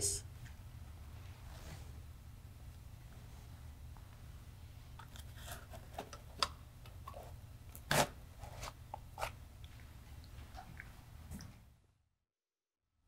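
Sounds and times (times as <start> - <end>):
low steady room hum: 0.0 - 12.0.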